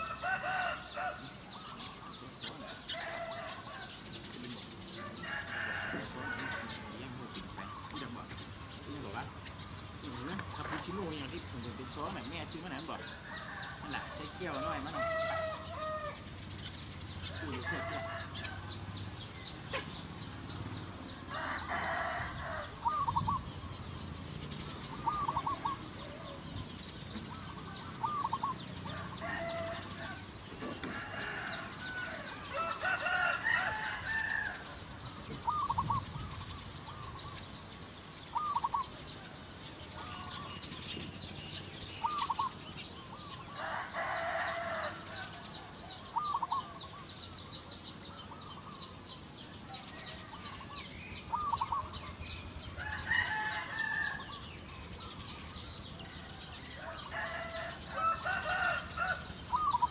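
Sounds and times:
rooster crowing: 0.0s - 1.9s, 2.5s - 4.2s, 4.9s - 7.3s, 11.8s - 16.2s, 17.3s - 19.2s, 21.1s - 23.3s, 27.3s - 34.8s, 43.5s - 47.0s, 52.7s - 54.6s, 56.0s - 59.9s
chickens clucking: 0.0s - 53.9s
small birds chirping: 0.0s - 59.9s.

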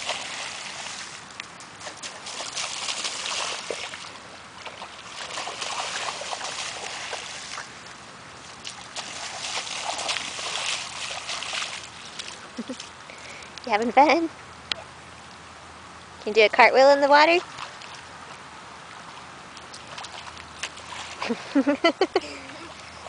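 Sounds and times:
bare feet splashing through puddle: 0.0s - 13.0s, 17.4s - 18.1s, 19.0s - 23.0s.

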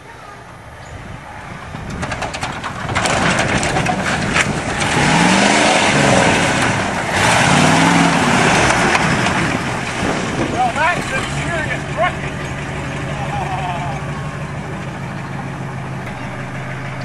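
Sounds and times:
diesel engine revving: 0.5s - 17.0s
clicks and rattles: 1.8s - 5.0s.

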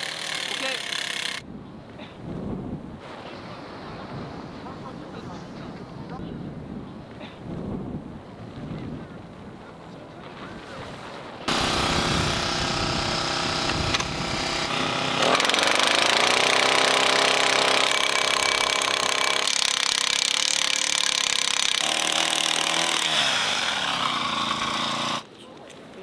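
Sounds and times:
post driver hammering pole: 0.0s - 1.4s, 11.5s - 25.2s
small engine running: 0.0s - 1.4s, 11.5s - 25.2s.

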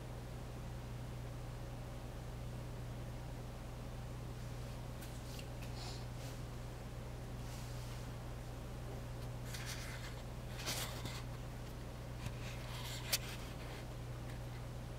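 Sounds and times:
low electrical hum: 0.0s - 14.9s
scratchy rustles: 9.4s - 11.4s, 12.2s - 14.5s.

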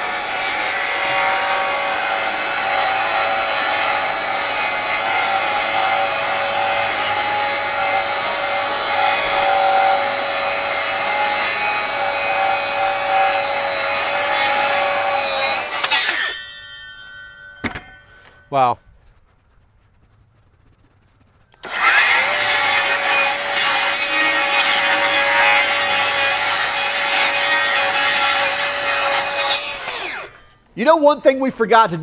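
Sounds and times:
blade cutting wood: 0.0s - 18.4s, 21.6s - 30.5s
circular saw whining: 0.0s - 18.6s, 21.6s - 30.6s.

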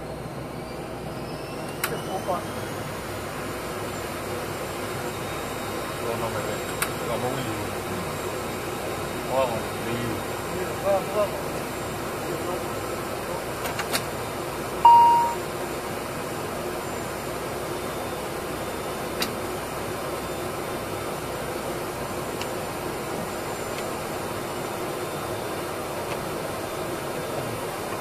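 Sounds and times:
aircraft cockpit hum: 2.6s - 28.0s
loud chime: 14.9s - 15.4s.

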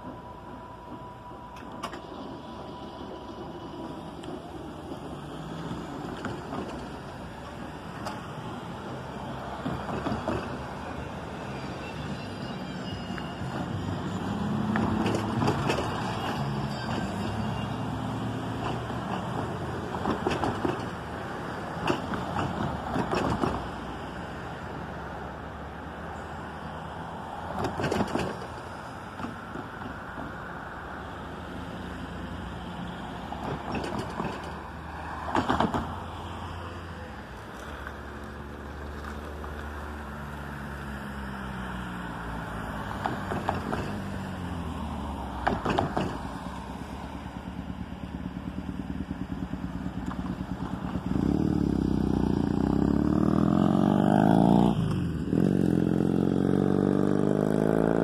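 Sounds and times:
steady outdoor hum: 0.0s - 41.0s
motorcycle engine approaching: 47.4s - 58.0s.

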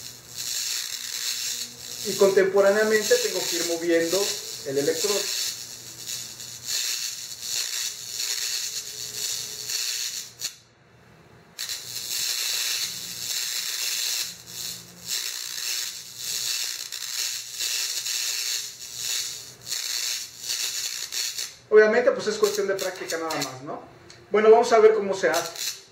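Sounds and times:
electric arc hissing and crackling: 0.0s - 10.6s, 11.6s - 23.7s, 24.4s - 25.9s
low electrical hum: 0.0s - 25.9s.

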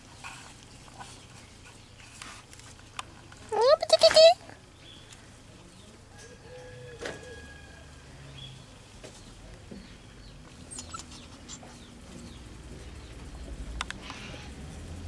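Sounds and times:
light clicks: 13.8s - 14.2s.

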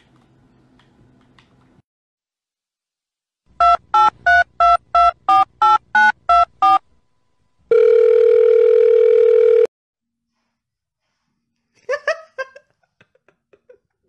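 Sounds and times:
steady telephone tone: 7.7s - 9.7s.

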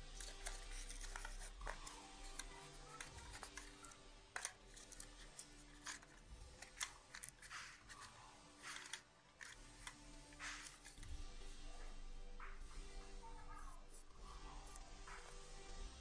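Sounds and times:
stiff paper crackling: 0.1s - 11.1s.

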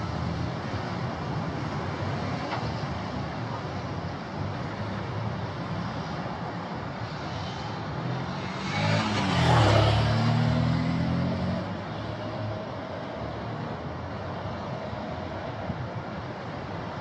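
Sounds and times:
vehicle engine passing by: 8.2s - 11.8s.

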